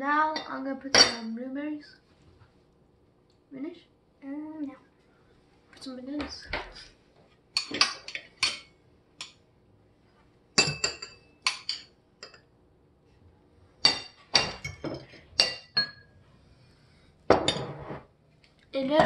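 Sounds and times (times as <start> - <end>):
cutlery clinking on ceramic dishes: 7.6 - 9.4, 10.6 - 12.5, 13.8 - 16.1, 17.3 - 18.0.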